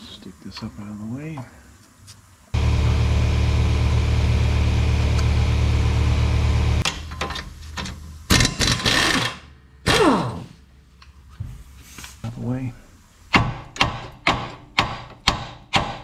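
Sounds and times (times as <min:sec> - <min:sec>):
pneumatic impact wrench hammering: 0:08.3 - 0:10.1.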